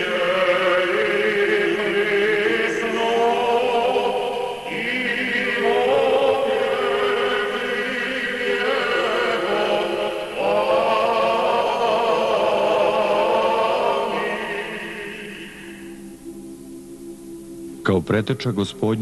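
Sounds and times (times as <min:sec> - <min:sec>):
choir chanting long notes: 0:00.0 - 0:19.0.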